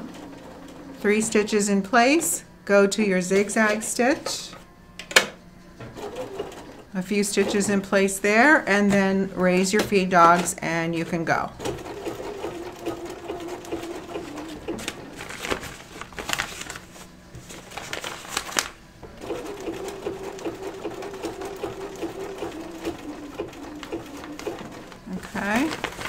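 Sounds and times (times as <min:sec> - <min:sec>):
sewing machine stitching: 0:05.9 - 0:08.0, 0:09.8 - 0:15.7, 0:19.0 - 0:26.0.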